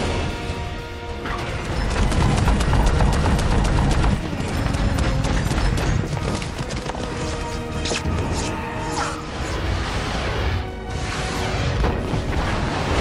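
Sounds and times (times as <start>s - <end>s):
dramatic film score music: 0.0s - 13.0s
galloping hooves: 1.8s - 7.7s.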